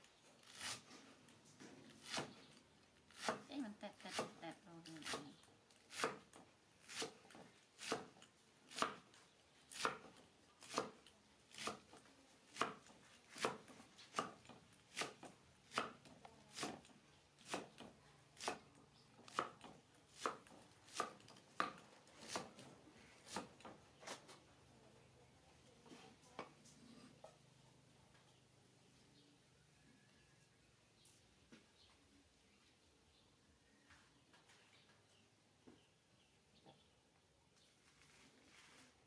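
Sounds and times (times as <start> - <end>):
cleaver chopping on wooden board: 8.7 - 9.1, 9.8 - 11.0, 12.6 - 18.7, 19.3 - 22.5, 23.3 - 23.6.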